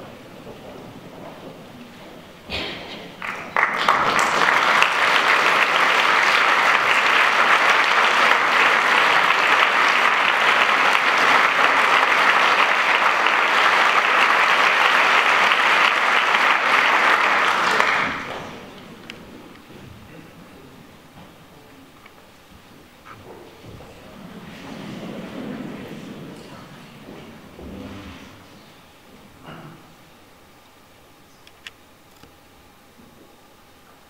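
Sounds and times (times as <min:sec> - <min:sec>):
audience applauding: 0:03.1 - 0:19.7.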